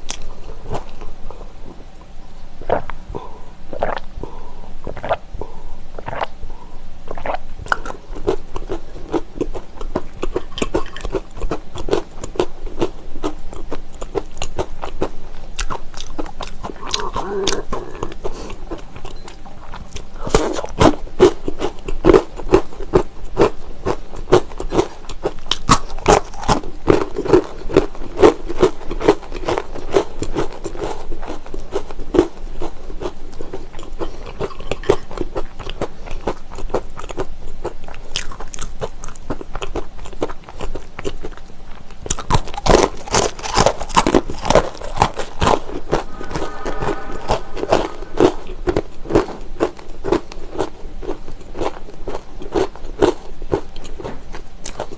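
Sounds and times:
crunching and chewing pretzels: 0:00.0 - 0:01.4, 0:02.6 - 0:06.4, 0:07.1 - 0:46.6, 0:49.1 - 0:54.9.

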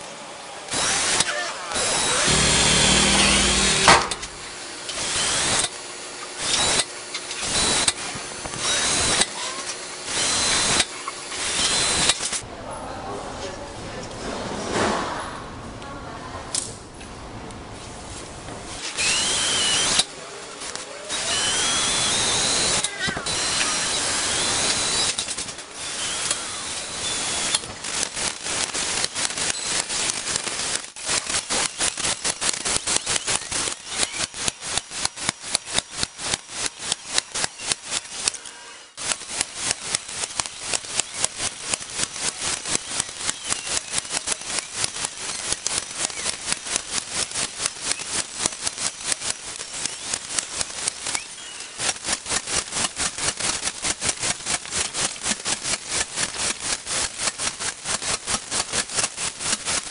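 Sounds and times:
impact driver hammering: 0:00.7 - 0:12.4
impact driver whining: 0:00.7 - 0:12.4, 0:18.8 - 0:59.9.

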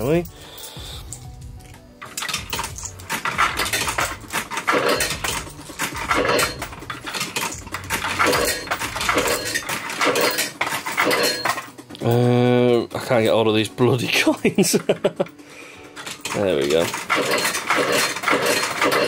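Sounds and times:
coins dropping into coin slot: 0:00.0 - 0:12.5, 0:14.3 - 0:19.0
coins clinking and rattling: 0:00.0 - 0:13.4, 0:14.0 - 0:19.0.

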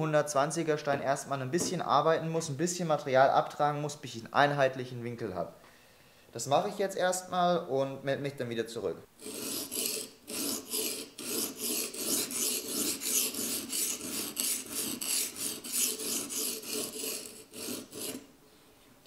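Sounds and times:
sharpening stone scraping knife edge: 0:09.2 - 0:18.3.

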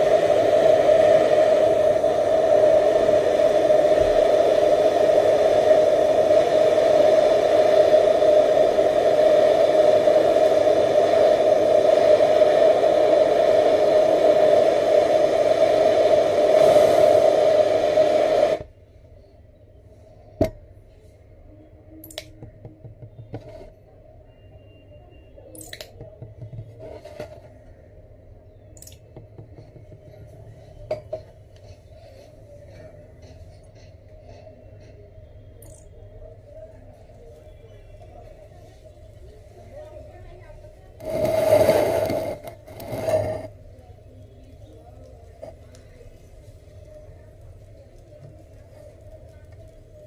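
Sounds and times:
gas torch flame hissing: 0:00.0 - 0:18.8, 0:35.6 - 0:50.0
sharp click: 0:22.0 - 0:22.4.

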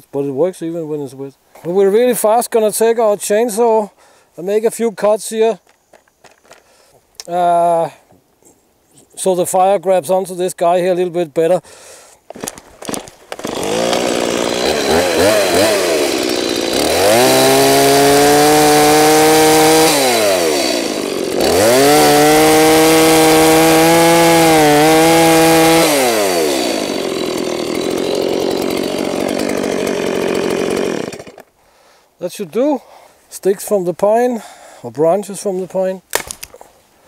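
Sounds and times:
chainsaw cutting log: 0:12.2 - 0:31.6.

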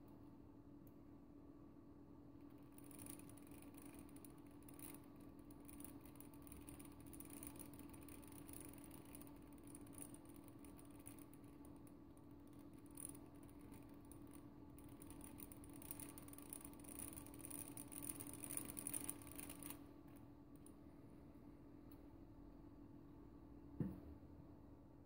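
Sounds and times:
ratchet and plastic gears clicking: 0:02.5 - 0:19.8.

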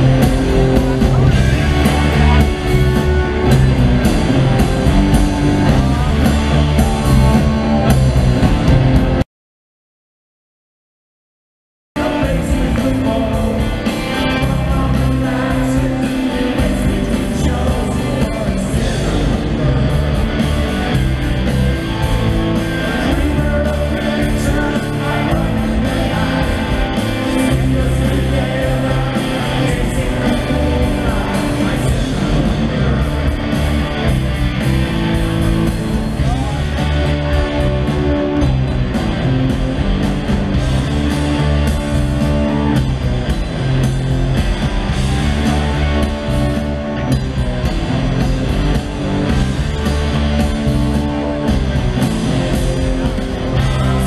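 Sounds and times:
bass guitar: 0:00.0 - 0:09.2, 0:12.0 - 0:54.0
drum kit: 0:00.0 - 0:09.2, 0:12.0 - 0:54.0
electric guitars: 0:00.0 - 0:09.2, 0:12.0 - 0:54.0
person singing: 0:12.0 - 0:20.1, 0:22.8 - 0:33.3.

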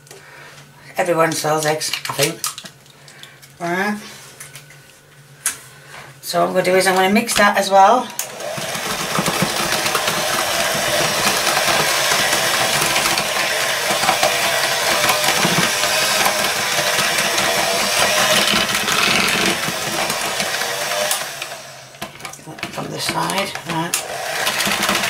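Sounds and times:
electric hand mixer running: 0:07.8 - 0:25.0.

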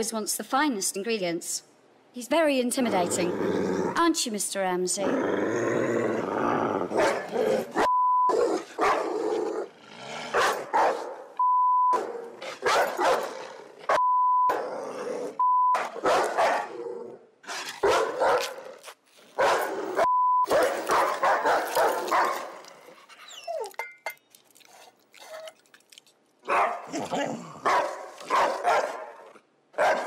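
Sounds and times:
dog barking and grumbling: 0:05.0 - 0:11.3, 0:11.9 - 0:18.8, 0:19.4 - 0:23.7, 0:26.4 - 0:30.0
censor bleeps: 0:07.9 - 0:08.4, 0:11.4 - 0:12.0, 0:14.0 - 0:14.6, 0:15.4 - 0:15.8, 0:20.1 - 0:20.5.

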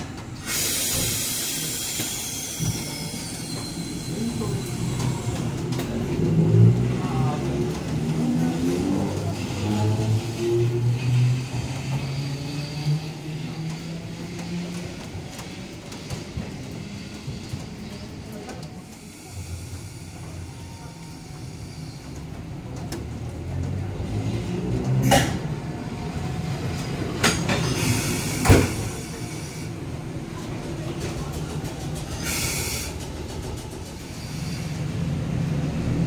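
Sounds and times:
tram wheels clacking over rail joints: 0:00.0 - 0:18.8, 0:22.1 - 0:29.4, 0:30.0 - 0:36.0
electric tram motor hum: 0:18.8 - 0:36.0.

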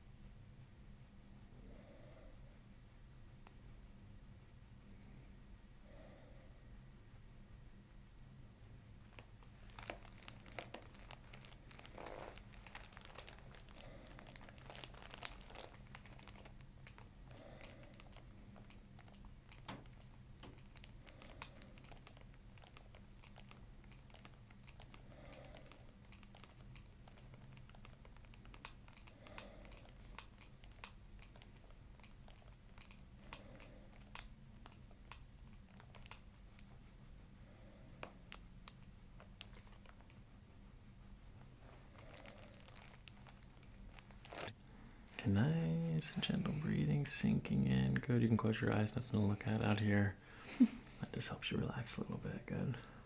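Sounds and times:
low room hum: 0:00.0 - 0:53.0
soft slow breaths: 0:00.0 - 0:53.0
paper and hair crinkling: 0:09.0 - 0:36.9, 0:41.4 - 0:44.6.

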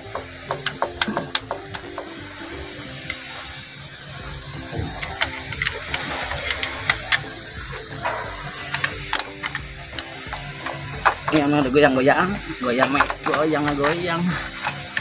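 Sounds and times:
metallic clicks of hand tools: 0:00.0 - 0:02.1, 0:07.9 - 0:11.7, 0:12.7 - 0:15.0
steady machine hum and hiss: 0:00.0 - 0:15.0.

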